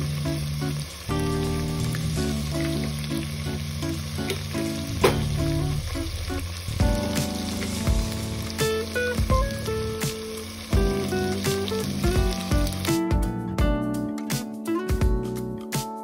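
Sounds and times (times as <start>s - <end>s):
meat sizzling in hot oil: 0.0s - 13.2s
background music: 0.0s - 16.0s.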